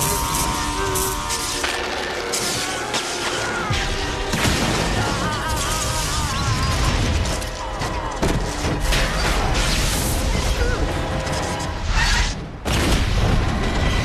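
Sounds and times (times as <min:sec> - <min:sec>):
crackling sparks: 0:00.0 - 0:14.0
explosive booms and crashes: 0:12.6 - 0:14.0.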